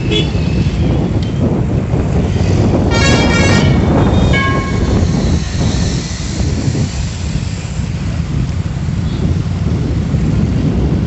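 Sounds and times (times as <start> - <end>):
vehicle horn honking: 0.0 - 0.4, 2.9 - 5.0
street traffic rumble: 0.0 - 11.0.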